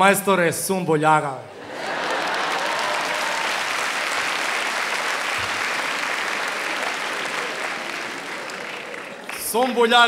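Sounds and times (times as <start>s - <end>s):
audience laughter: 1.6s - 3.0s
audience applauding: 1.6s - 10.0s.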